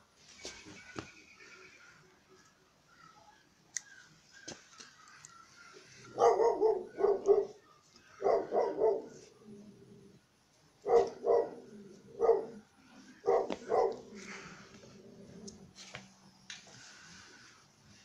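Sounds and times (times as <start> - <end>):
puppy barking: 6.1 - 7.6, 8.2 - 9.3, 10.8 - 11.6, 12.2 - 12.6, 13.2 - 14.1.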